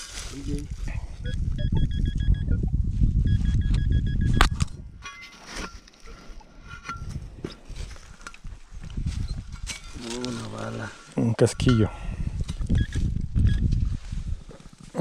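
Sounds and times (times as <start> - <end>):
scraping and rustling of digging soil: 0.0 - 0.9, 5.2 - 11.6
metal detector beeping: 1.2 - 5.4, 12.7 - 13.7.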